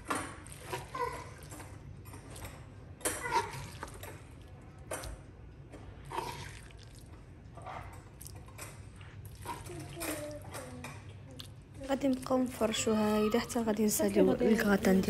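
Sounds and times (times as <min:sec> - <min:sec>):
spoon scraping wet filling: 0:05.8 - 0:10.2.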